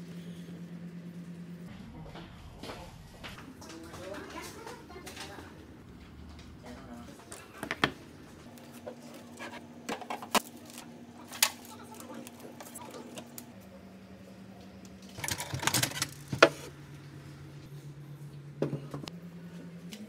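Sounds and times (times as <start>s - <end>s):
clatter and rustling: 1.7s - 13.4s, 15.0s - 16.7s.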